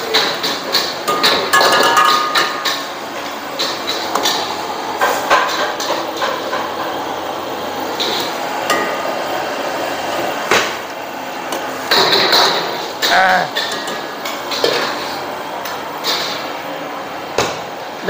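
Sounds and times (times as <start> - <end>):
utensils knocking on pots: 0.0 - 2.9, 3.5 - 7.0, 8.0 - 9.2, 11.9 - 16.4.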